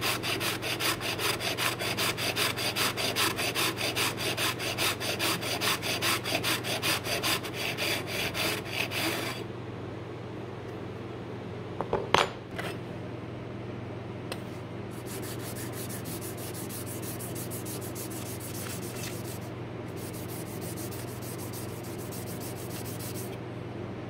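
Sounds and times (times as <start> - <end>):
scraper scrubbing on whetstone: 0.0 - 9.4, 15.0 - 23.4.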